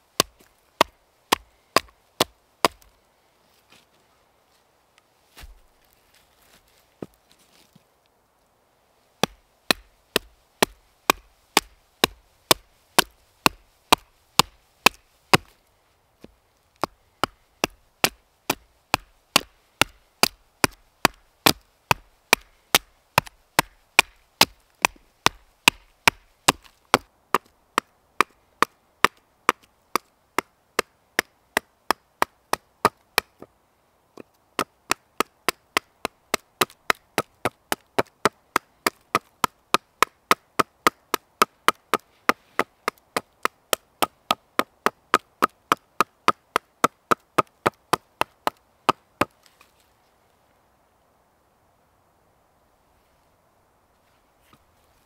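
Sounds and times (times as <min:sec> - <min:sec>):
small axe chopping wood: 0:00.2 - 0:02.9, 0:09.2 - 0:15.5, 0:16.8 - 0:33.5, 0:34.2 - 0:49.4.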